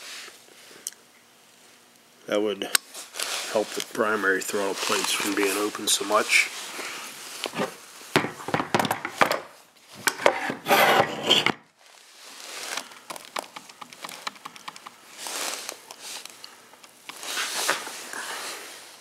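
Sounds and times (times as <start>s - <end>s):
metal knocks and scraping on wood: 10.0s - 11.6s.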